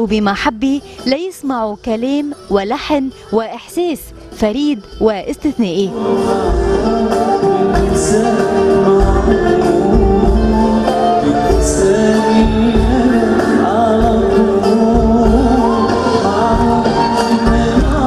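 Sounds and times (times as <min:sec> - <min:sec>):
keyboard or string chords: 0:00.0 - 0:18.0
man singing: 0:05.9 - 0:18.0
regular drum beat: 0:06.0 - 0:18.0.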